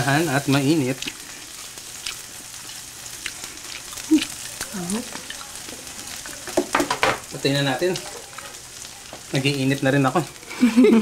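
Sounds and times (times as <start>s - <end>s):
meat sizzling on a grill pan: 0.0s - 11.0s.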